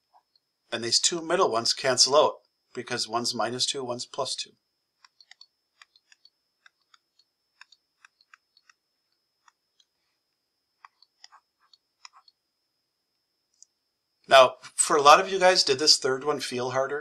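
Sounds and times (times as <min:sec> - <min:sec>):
faint high-pitched tone: 0:00.7 - 0:04.6, 0:14.3 - 0:17.0
stylus tapping on tablet screen: 0:05.0 - 0:08.8, 0:10.8 - 0:12.4.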